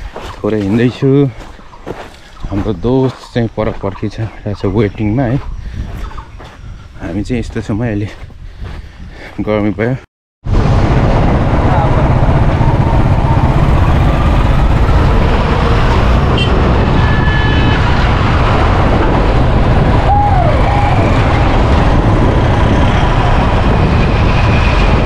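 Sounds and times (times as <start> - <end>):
wind rush: 0.0 - 25.0
passing traffic: 10.5 - 25.0
motorcycle engine: 10.6 - 25.0.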